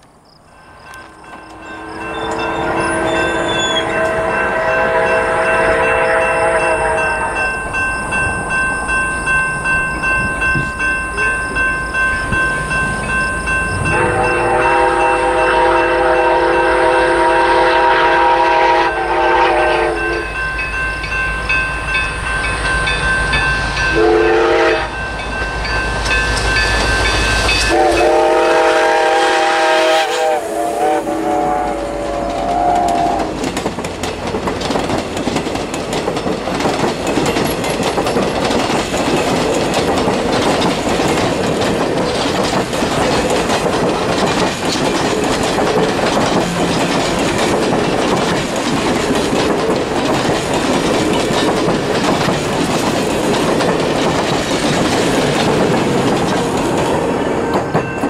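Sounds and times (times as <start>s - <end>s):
train wheels clicking on rail joints: 0.0s - 30.2s, 31.4s - 58.0s
steam whistle blasts: 1.5s - 7.6s, 13.8s - 20.3s, 23.9s - 25.0s, 27.6s - 33.4s.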